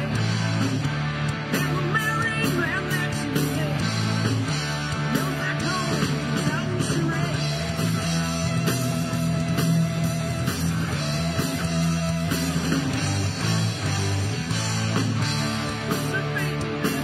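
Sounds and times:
live rock band playing: 0.0 - 17.0.

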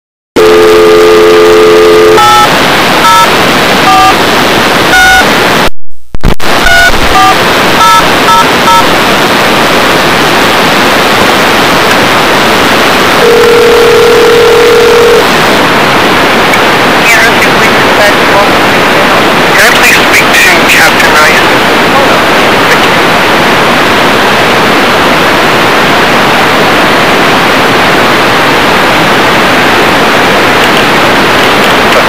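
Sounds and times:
ringback tone: 0.4 - 4.2, 4.9 - 5.3, 6.6 - 8.9, 13.2 - 15.2
telephone line hiss: 0.4 - 4.2, 4.9 - 5.3, 6.6 - 9.0, 13.2 - 15.3
touch-tone dialing: 3.9 - 4.2, 6.7 - 8.0
telephone dial tone: 13.2 - 15.2.

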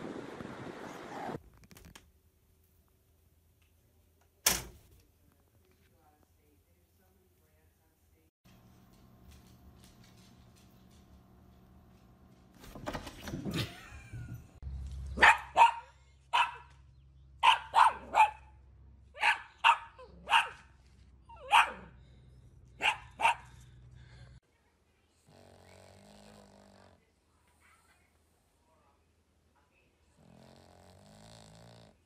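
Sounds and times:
dog barking sharply: 15.2 - 16.7, 17.4 - 18.5, 19.2 - 20.6, 21.4 - 21.9, 22.8 - 23.4.

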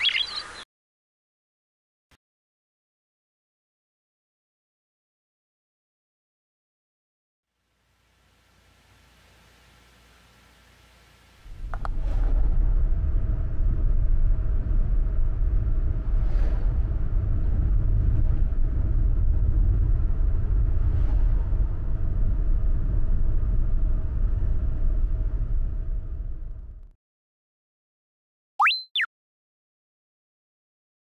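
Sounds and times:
faint steady hum: 7.5 - 16.2
road and engine rumble in car: 11.4 - 26.9.

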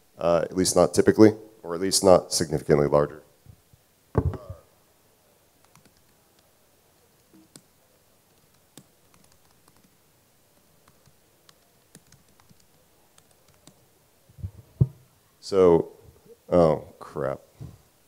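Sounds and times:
faint keyboard typing: 5.6 - 6.5, 7.2 - 10.0, 10.6 - 14.6.

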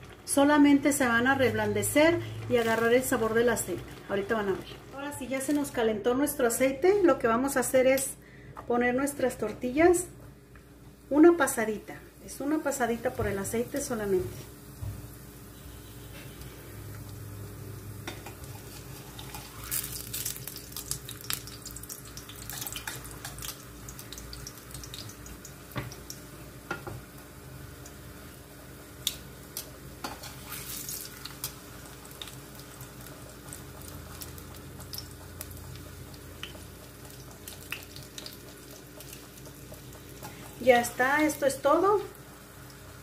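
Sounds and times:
tortilla sizzling in hot oil: 0.0 - 5.8, 10.9 - 43.0.

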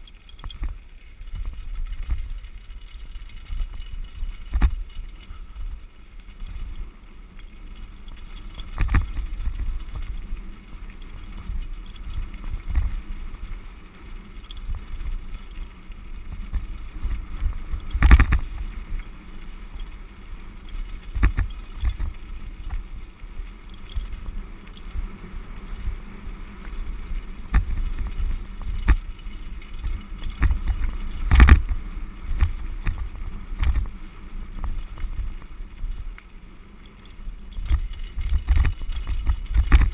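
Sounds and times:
bike knocking and rattling: 0.0 - 39.9
tyres crunching over gravel: 0.0 - 39.9
wind buffeting microphone: 7.8 - 36.2, 37.2 - 39.9.

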